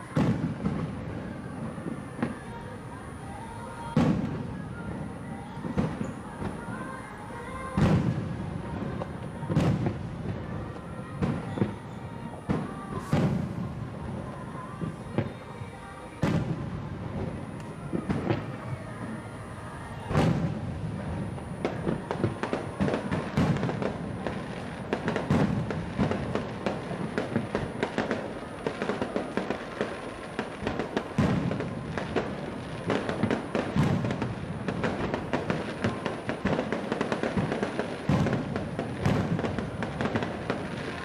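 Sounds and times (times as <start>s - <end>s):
fireworks crackling: 0.0s - 41.0s
heavy fireworks booms: 0.0s - 41.0s.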